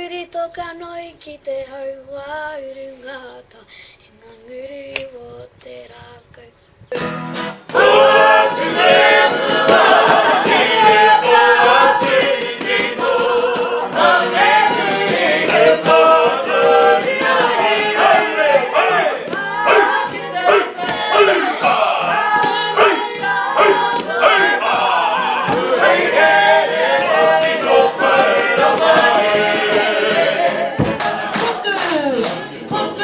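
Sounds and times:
girl singing softly: 0.0s - 6.9s
group singing loudly together: 7.7s - 33.0s.

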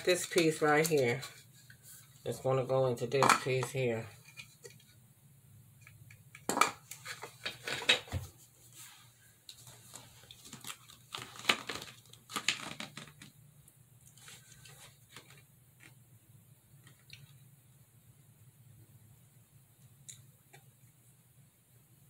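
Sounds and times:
plastic and metal pieces knocking: 6.4s - 8.2s, 11.4s - 13.3s.

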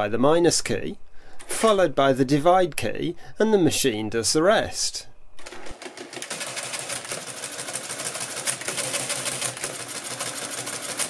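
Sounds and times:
mechanical calculator clattering: 5.4s - 11.0s.

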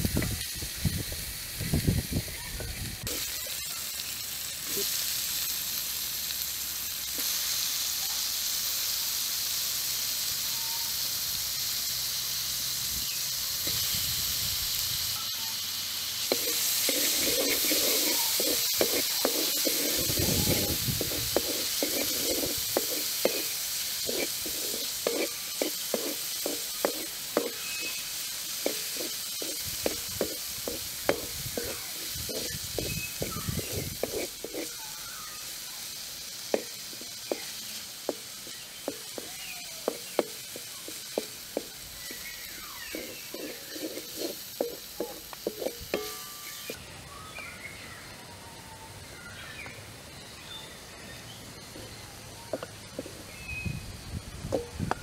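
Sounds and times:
vegetables sizzling in a wok: 0.0s - 55.0s
wooden spoon scraping a pan: 16.3s - 35.0s, 36.5s - 46.8s.

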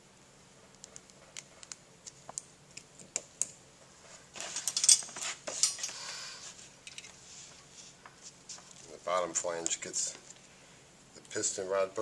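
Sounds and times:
metal tools clattering: 4.4s - 6.0s.

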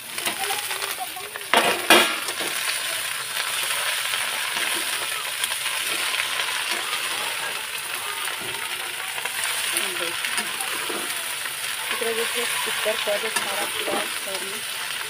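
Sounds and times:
hot oil sizzling: 0.0s - 15.0s.

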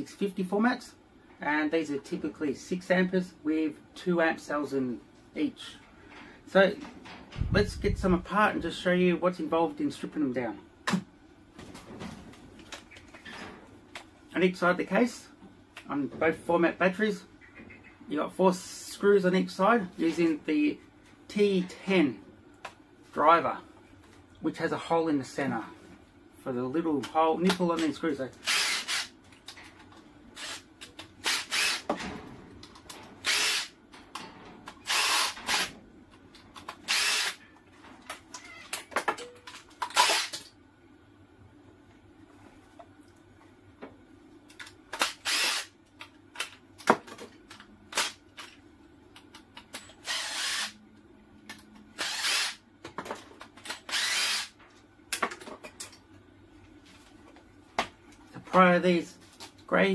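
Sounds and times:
cordless drill running in bursts: 28.4s - 29.1s, 31.2s - 31.9s, 33.2s - 33.7s, 34.9s - 35.7s, 36.9s - 37.4s, 45.2s - 45.7s, 50.0s - 50.8s, 52.0s - 52.6s, 53.9s - 54.5s.

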